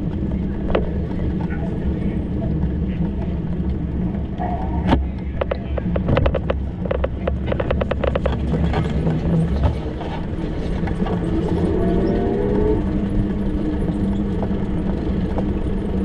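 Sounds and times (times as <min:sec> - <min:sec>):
road traffic: 0:00.0 - 0:16.0
engine tone rising: 0:03.8 - 0:06.2, 0:07.4 - 0:16.0.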